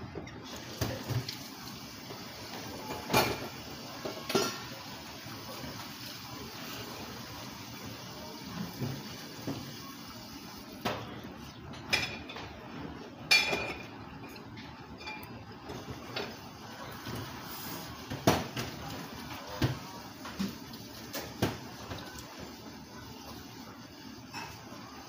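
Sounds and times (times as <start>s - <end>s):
tableware clinking: 11.7s - 12.6s, 13.2s - 15.8s.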